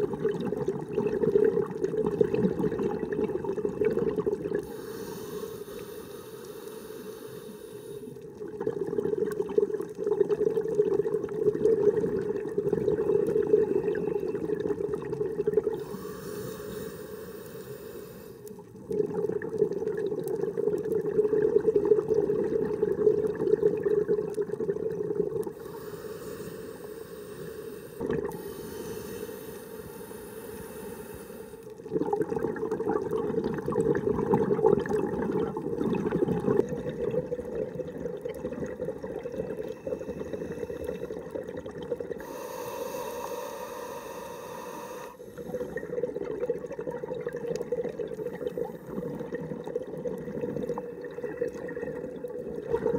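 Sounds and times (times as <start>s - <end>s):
bubbling underwater exhalations: 0.0s - 4.8s, 8.2s - 16.2s, 18.7s - 26.3s, 28.0s - 29.0s, 31.8s - 52.9s
hissing regulator inhalations: 4.6s - 8.3s, 15.7s - 18.7s, 25.4s - 31.8s, 39.7s - 41.3s, 42.2s - 46.0s.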